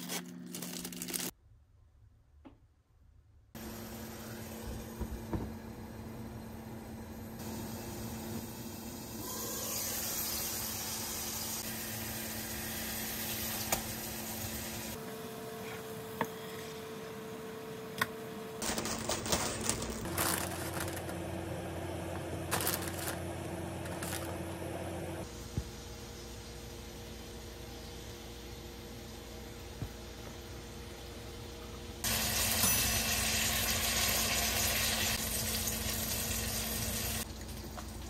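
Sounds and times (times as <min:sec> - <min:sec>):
patties sizzling in frying pan: 0:07.4 - 0:15.0, 0:32.0 - 0:38.0.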